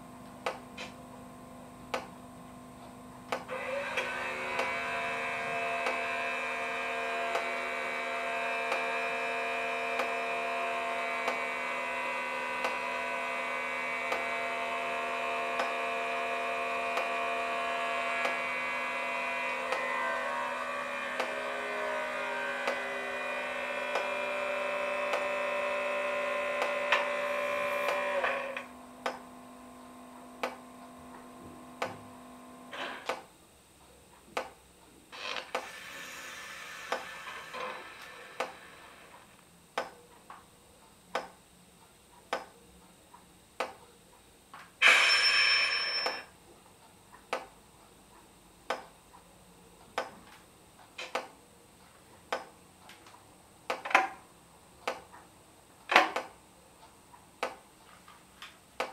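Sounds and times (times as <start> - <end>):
locomotive running hum: 3.4 - 33.2, 35.2 - 39.4.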